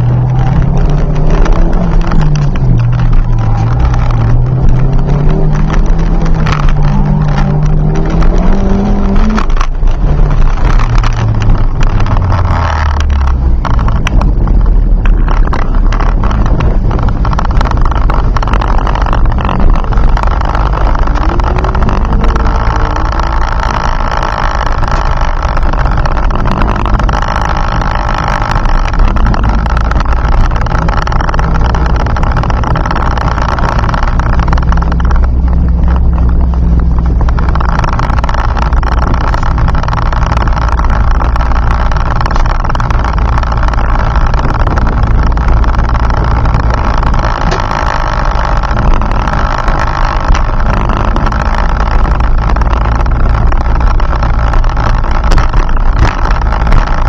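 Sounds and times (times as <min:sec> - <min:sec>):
car engine running: 0:00.0 - 0:57.0
road noise: 0:00.0 - 0:57.0.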